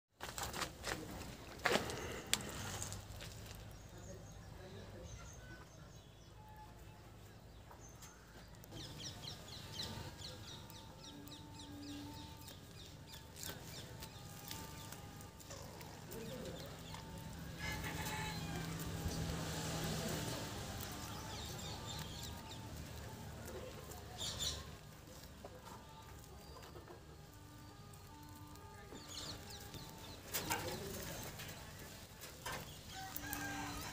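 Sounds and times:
chickens clucking: 8.6s - 33.9s.

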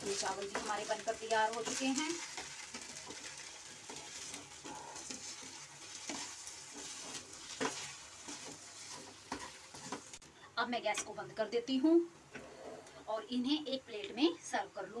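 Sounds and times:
wooden spatula scraping pan: 0.0s - 10.2s
faint sizzle: 0.0s - 15.0s.

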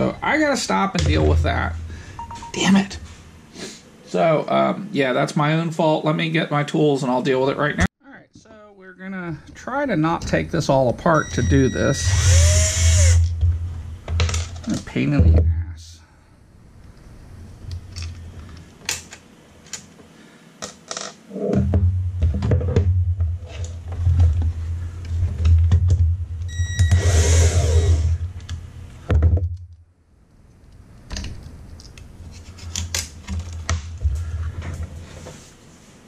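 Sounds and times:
cordless drill running: 12.0s - 13.3s, 26.9s - 28.1s.

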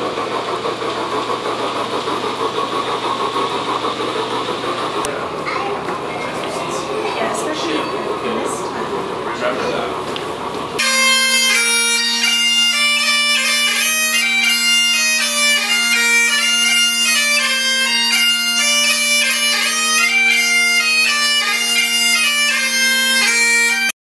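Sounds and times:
bagpipe drones: 10.7s - 24.0s
bagpipe chanter melody: 10.8s - 24.0s.

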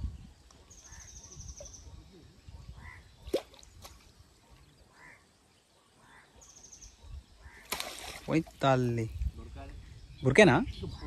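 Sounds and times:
faint bird calls: 0.4s - 8.3s.

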